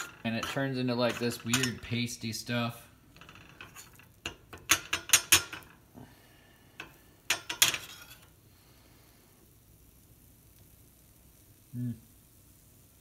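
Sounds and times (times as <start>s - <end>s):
metal spoon scraping frying pan: 0.0s - 2.2s, 3.1s - 5.8s, 6.8s - 8.4s.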